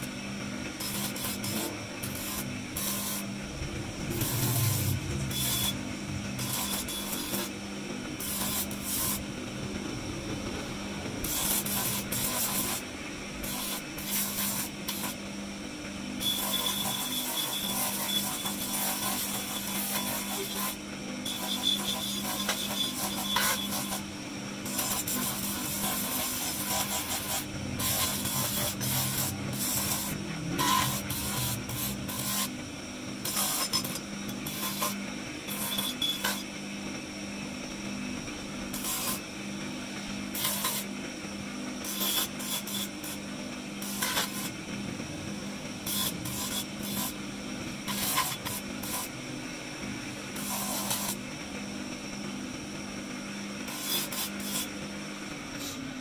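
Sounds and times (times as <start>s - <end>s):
grinding wheel humming: 0.0s - 56.0s
marble rasping on grinder: 0.7s - 7.6s, 8.2s - 15.2s, 16.2s - 32.6s, 33.2s - 36.6s, 37.7s - 39.3s, 40.3s - 41.0s, 41.8s - 44.7s, 45.8s - 47.2s, 47.8s - 49.2s, 50.3s - 51.2s, 53.6s - 54.8s.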